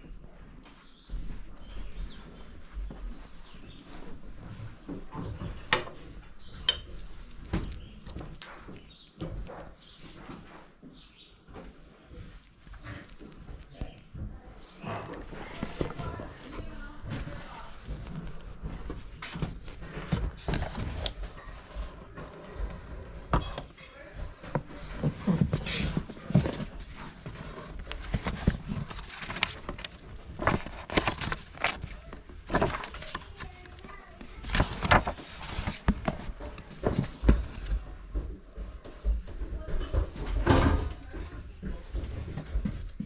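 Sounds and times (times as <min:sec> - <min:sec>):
voices murmuring: 0:11.7 - 0:18.8
books knocking and scraping on shelf: 0:12.8 - 0:38.3, 0:39.6 - 0:41.0, 0:41.6 - 0:43.0.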